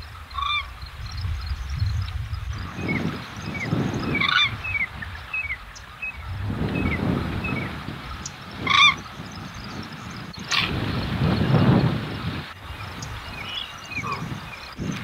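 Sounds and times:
birds chirping: 0:00.0 - 0:15.0
low rumble: 0:05.0 - 0:08.8.

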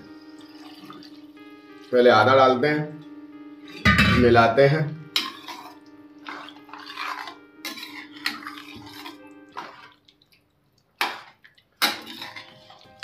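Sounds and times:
spoon stirring potatoes in water: 0:05.2 - 0:13.0.

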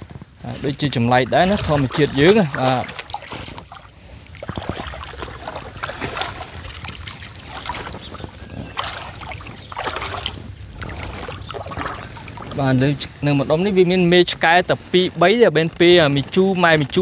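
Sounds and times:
water sloshing and splashing: 0:00.4 - 0:13.6.

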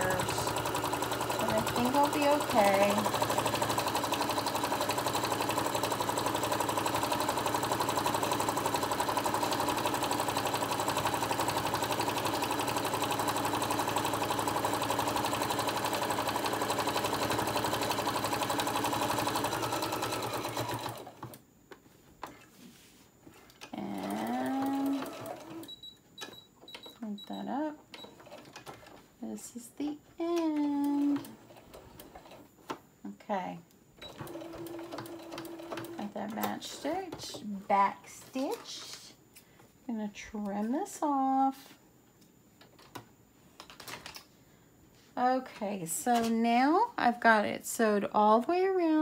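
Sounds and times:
electric sewing machine running: 0:00.0 - 0:21.4, 0:23.8 - 0:25.7, 0:34.0 - 0:36.2.

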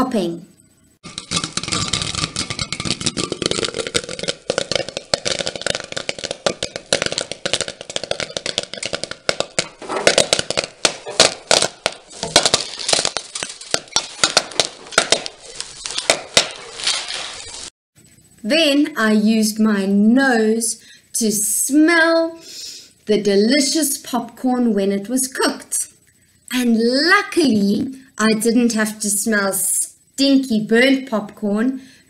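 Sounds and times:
pan sizzling: 0:01.0 - 0:17.7
popcorn popping: 0:01.0 - 0:17.7.

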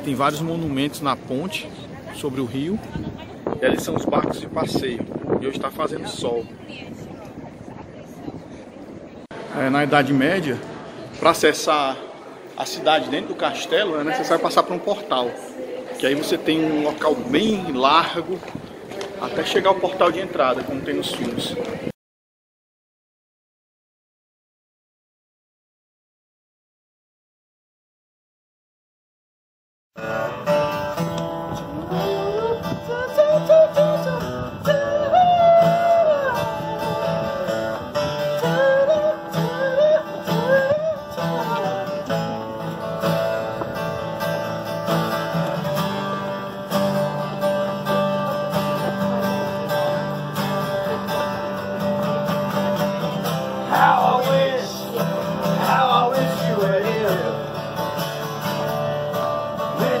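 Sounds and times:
acoustic guitar: 0:30.0 - 1:00.0
person singing: 0:31.6 - 0:37.8, 0:38.4 - 0:42.2, 0:59.6 - 1:00.0.

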